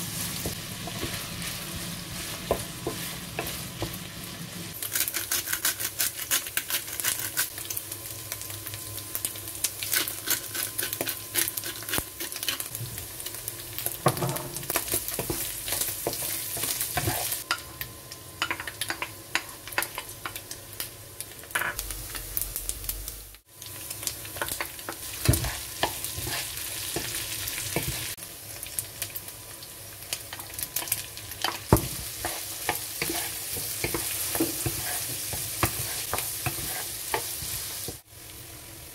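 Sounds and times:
meat sizzling in a frying pan: 0.0 - 38.9
wooden spatula scraping a pan: 25.3 - 26.6, 32.2 - 37.6.

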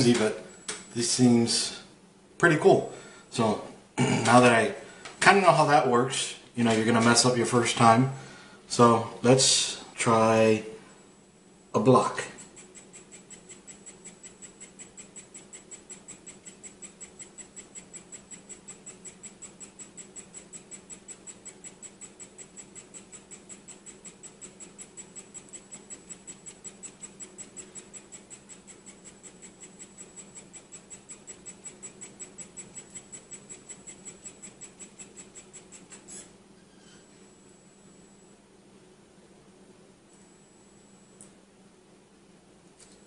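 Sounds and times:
motor ticking rapidly: 12.2 - 36.3
faint high whine: 24.1 - 38.7, 40.0 - 41.6.

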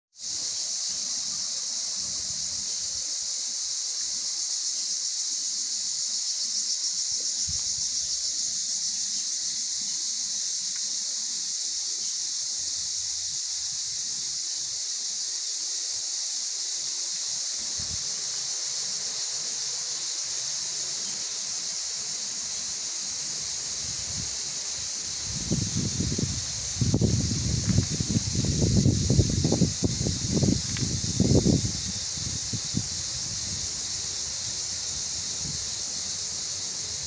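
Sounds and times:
insects droning: 0.2 - 37.0.

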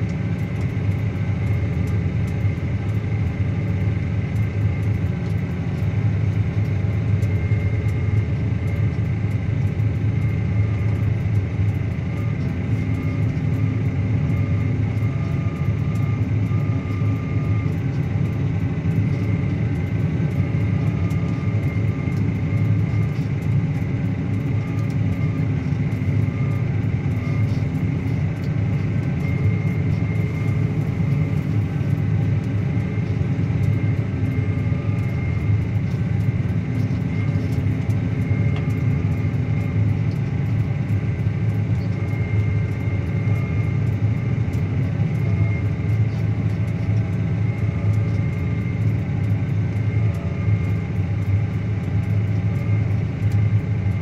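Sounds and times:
high steady whine: 0.0 - 54.0
tractor diesel engine under load: 8.5 - 40.8.

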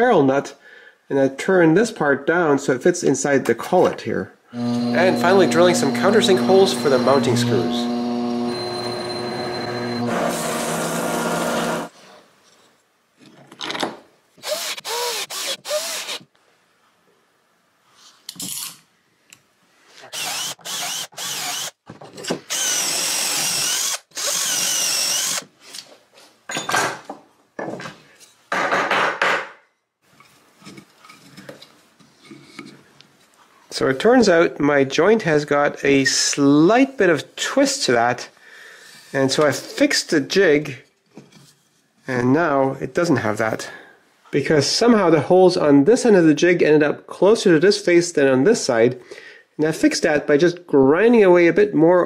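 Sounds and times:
cordless drill boring into wood: 4.6 - 11.9, 14.4 - 16.2, 20.1 - 21.8, 22.5 - 25.5
milling machine spindle drilling metal: 4.6 - 11.9, 20.1 - 21.7, 22.5 - 25.4.

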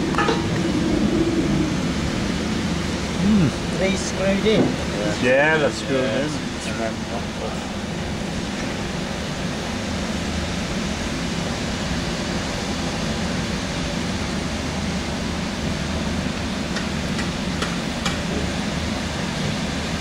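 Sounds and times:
machine humming: 0.0 - 13.7.

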